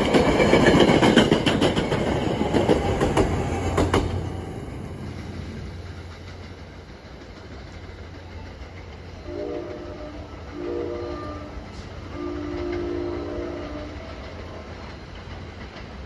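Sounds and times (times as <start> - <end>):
train wheel and track rumble: 0.0 - 16.0
distant train horn: 9.2 - 14.8.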